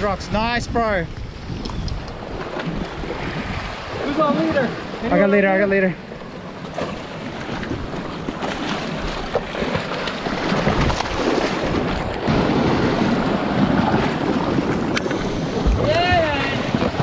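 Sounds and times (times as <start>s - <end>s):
wind buffeting microphone: 0.0s - 5.3s, 6.0s - 17.0s
sea swell washing over rocks: 7.2s - 17.0s.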